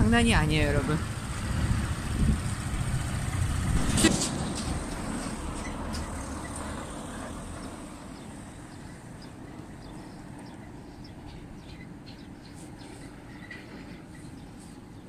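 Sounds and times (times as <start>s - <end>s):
low rumble: 0.0s - 8.1s.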